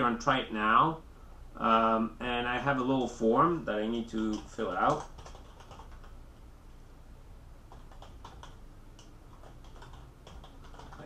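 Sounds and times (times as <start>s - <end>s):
low steady hum: 0.0s - 11.0s
computer keyboard typing: 4.1s - 6.2s, 7.7s - 11.0s.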